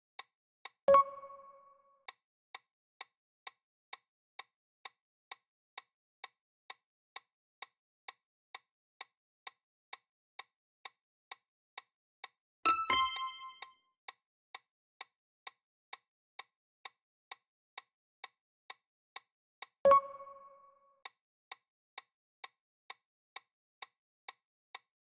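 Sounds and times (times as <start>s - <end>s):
countdown timer ticking: 0.9s - 1.8s, 12.7s - 13.7s, 19.9s - 21.1s
bright multi-tone chime: 12.7s - 13.6s
short chime: 12.7s - 13.6s.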